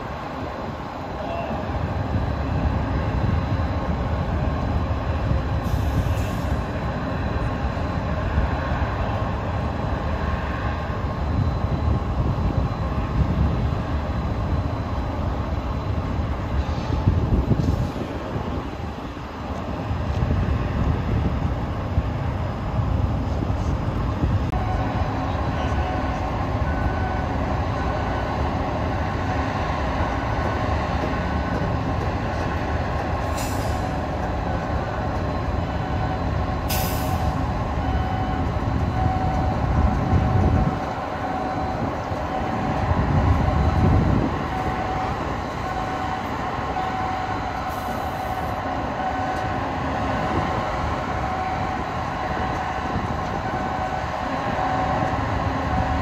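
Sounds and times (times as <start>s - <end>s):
container crane mechanical rumble: 0.0s - 56.0s
repeating warning beep: 33.9s - 49.5s.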